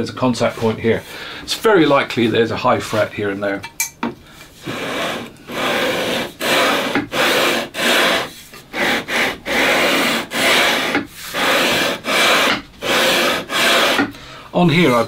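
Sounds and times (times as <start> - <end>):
sandpaper strokes on guitar frets: 4.6 - 14.1.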